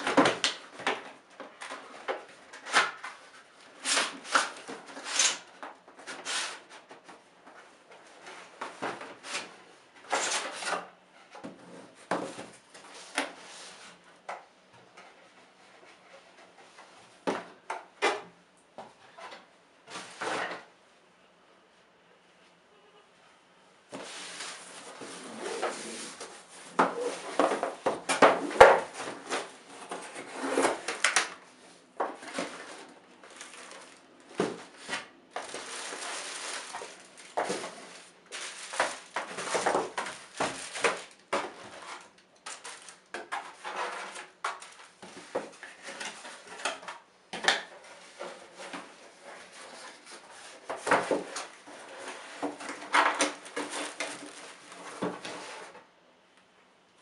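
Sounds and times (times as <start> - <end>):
cardboard scraping and rustling: 23.9 - 47.0, 47.6 - 55.9.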